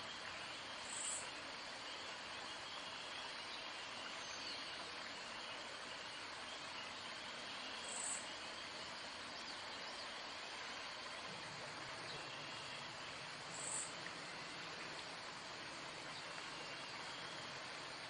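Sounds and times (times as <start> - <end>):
insects chirping: 7.8 - 18.0.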